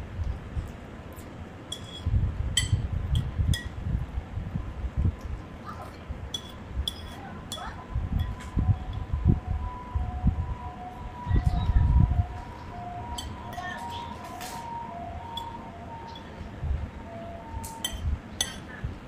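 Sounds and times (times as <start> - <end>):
faint steady tone: 6.2 - 19.0.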